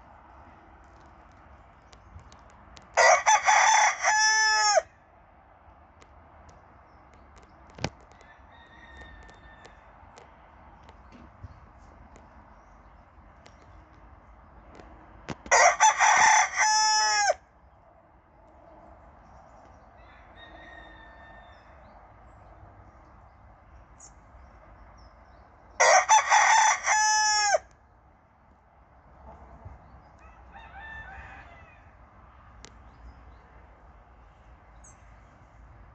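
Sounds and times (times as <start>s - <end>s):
rooster crowing: 3.0s - 4.9s, 8.2s - 9.9s, 15.5s - 17.4s, 20.0s - 21.9s, 25.8s - 27.7s, 30.2s - 32.0s.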